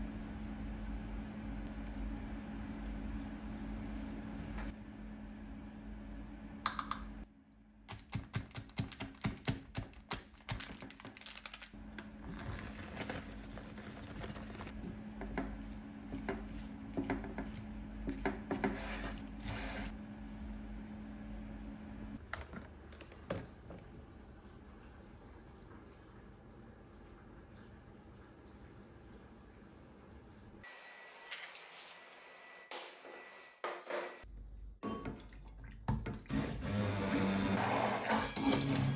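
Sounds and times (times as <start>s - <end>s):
steady low hum: 0.0s - 7.9s.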